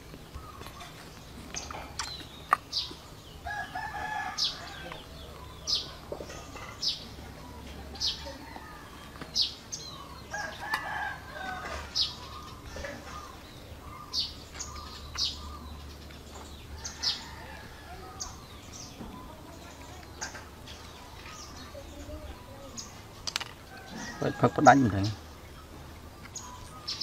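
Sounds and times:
bird chirping: 0.0s - 27.0s.

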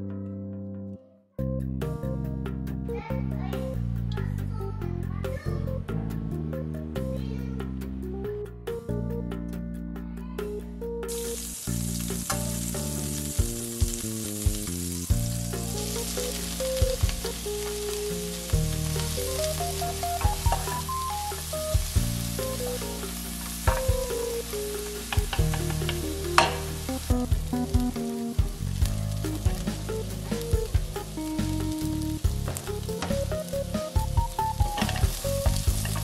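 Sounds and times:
background music with melody: 0.0s - 36.0s
mushrooms sizzling in frying pan: 11.1s - 36.0s
wooden spatula tapping and scraping: 18.9s - 22.0s, 23.4s - 24.3s, 25.0s - 27.9s, 32.3s - 36.0s.

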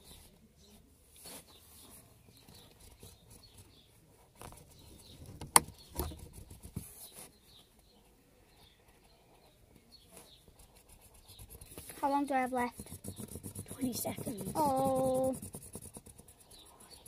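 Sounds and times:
marker squeaking on paper: 1.3s - 3.8s, 4.5s - 7.3s, 10.3s - 17.0s.

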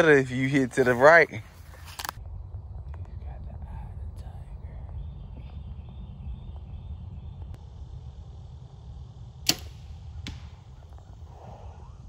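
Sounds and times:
steady low rumble: 0.0s - 12.0s
bowstring snap: 9.4s - 10.7s
arrow hitting target: 9.4s - 11.0s.

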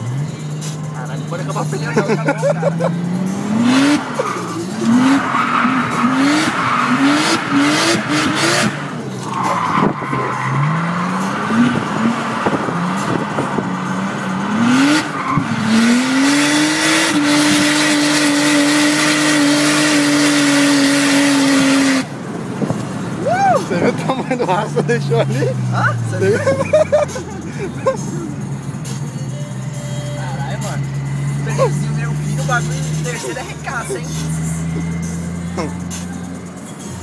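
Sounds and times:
car engine revving: 0.0s - 37.0s
tyres squealing: 3.6s - 16.4s.

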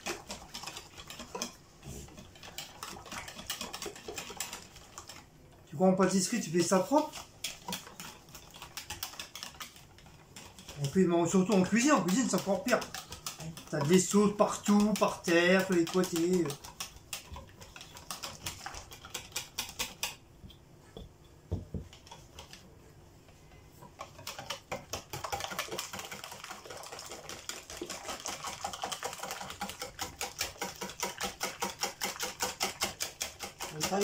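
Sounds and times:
whisk clicking against bowl: 0.0s - 5.3s, 5.9s - 20.6s, 21.6s - 22.7s, 23.8s - 34.0s.

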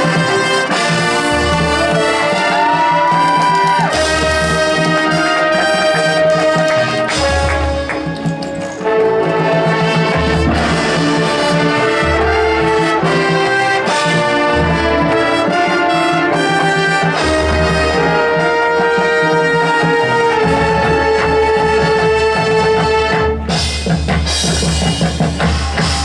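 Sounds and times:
brass chords: 0.0s - 26.0s
marching band playing: 0.0s - 26.0s
heavy low drum accents: 22.2s - 26.0s.

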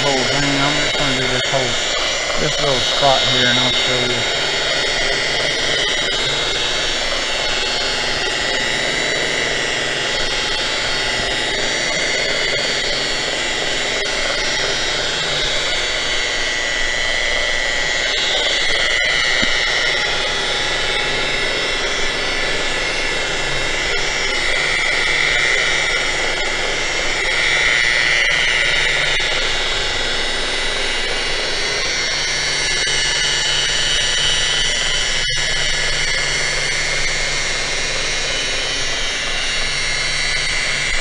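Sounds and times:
angle grinder polishing metal: 0.0s - 26.1s.

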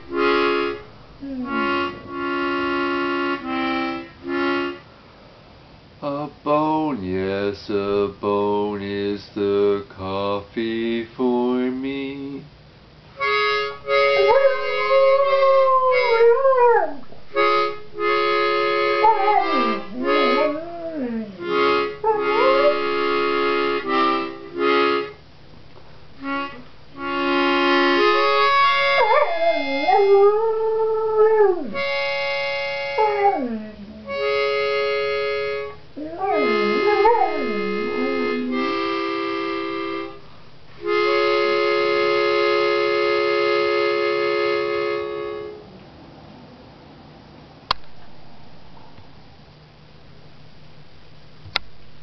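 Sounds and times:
harmonica chords: 0.0s - 5.1s, 13.1s - 45.7s
dog howling: 1.2s - 2.0s, 14.0s - 17.2s, 19.0s - 22.9s, 28.0s - 31.9s, 33.0s - 34.3s, 36.0s - 38.7s.

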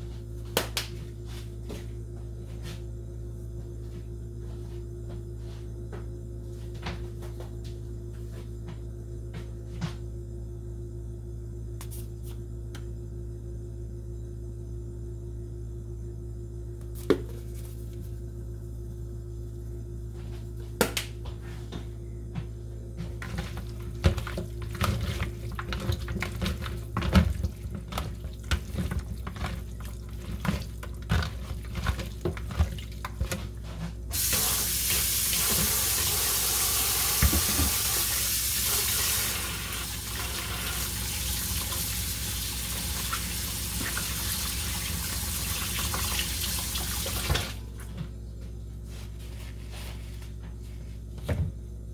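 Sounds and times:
low steady hum: 0.0s - 51.9s
tap water running: 34.1s - 47.6s.

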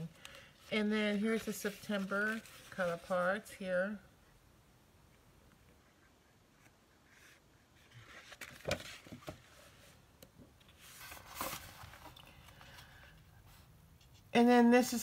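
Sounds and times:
paper taps and rustles: 8.0s - 9.5s.

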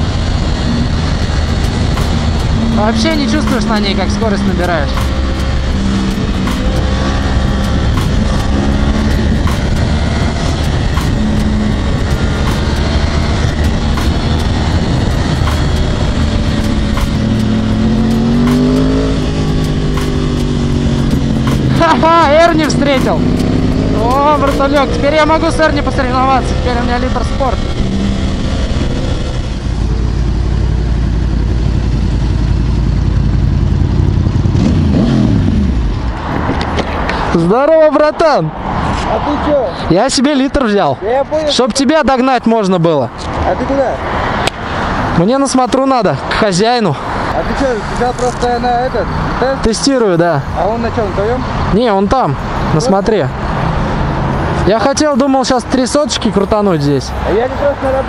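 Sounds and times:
motorcycle engine running: 0.0s - 36.2s
wind rushing: 0.0s - 39.9s.

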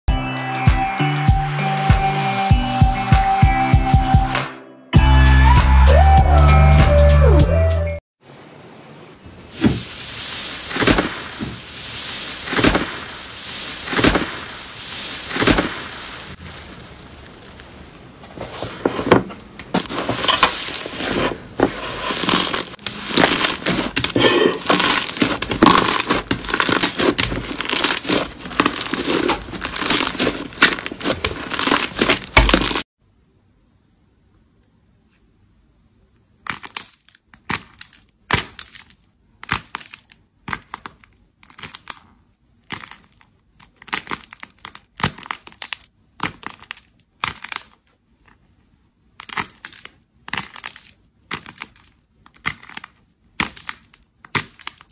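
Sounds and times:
clay ball crackling: 9.4s - 32.9s, 36.1s - 54.9s
slime squishing: 9.5s - 32.9s, 36.4s - 54.9s
slime crackling and popping: 9.6s - 18.2s, 19.8s - 32.9s, 36.4s - 48.0s, 49.0s - 54.9s.

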